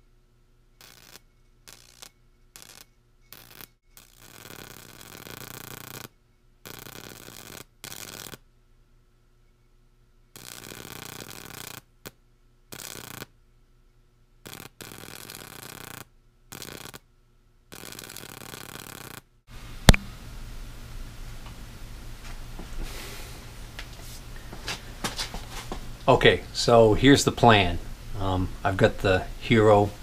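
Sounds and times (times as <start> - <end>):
high-voltage arc buzzing: 0.8 - 8.4, 10.4 - 13.3, 14.4 - 17.0, 17.7 - 20.1.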